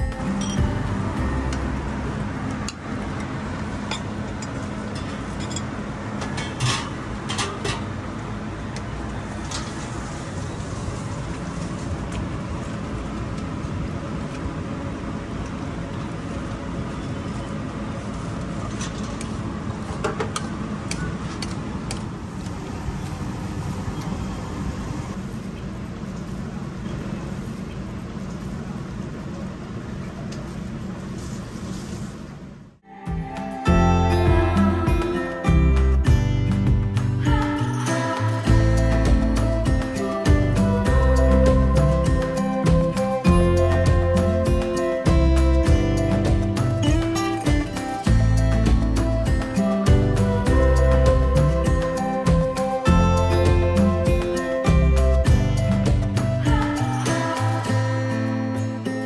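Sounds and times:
low kitchen hum: 0:00.0 - 0:44.4.

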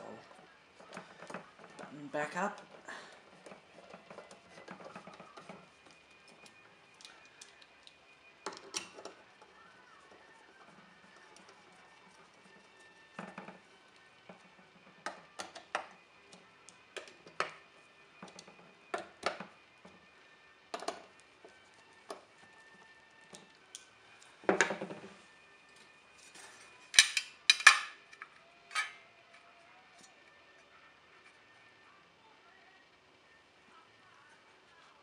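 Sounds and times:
metal cover plate clanking: 0:27.0 - 0:28.0.

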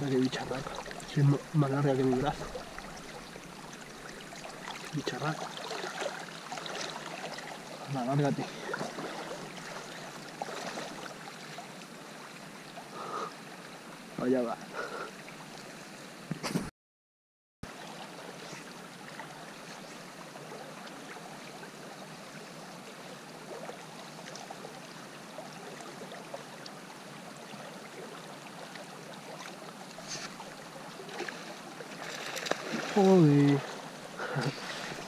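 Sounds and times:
river running over gravel: 0:00.0 - 0:15.8, 0:22.8 - 0:35.0.

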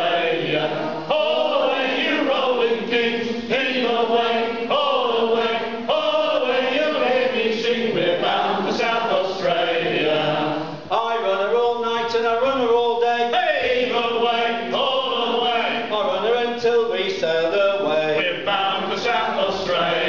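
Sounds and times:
men singing a sea shanty: 0:00.0 - 0:20.0.

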